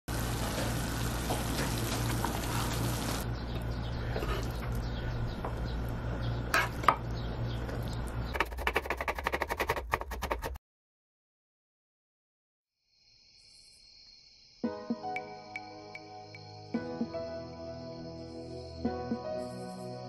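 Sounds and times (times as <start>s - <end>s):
food sizzling in a pan: 0.1s - 3.2s
knife chopping on wooden board: 8.4s - 10.6s.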